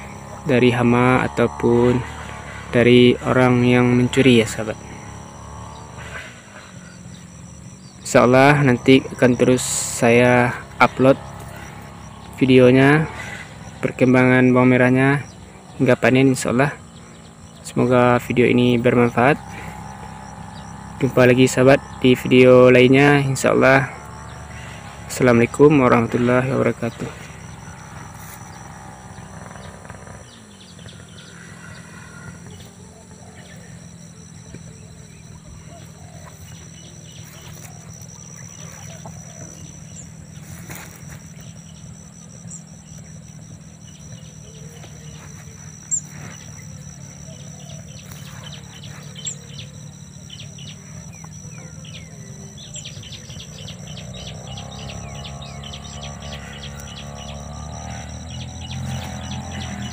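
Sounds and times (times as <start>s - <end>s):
bird chirps: 0.0s - 59.9s
high insect drone: 0.0s - 59.9s
low steady rumble: 0.0s - 59.9s.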